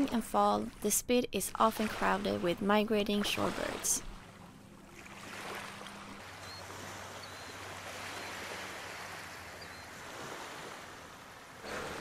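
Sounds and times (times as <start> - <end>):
shallow seawater washing on sand: 5.0 - 12.0.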